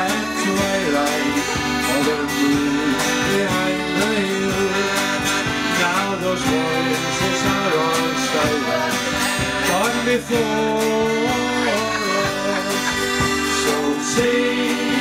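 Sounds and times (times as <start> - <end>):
accordion: 0.0 - 15.0
bass guitar: 0.0 - 15.0
drums: 0.0 - 15.0
electric guitar: 0.0 - 15.0.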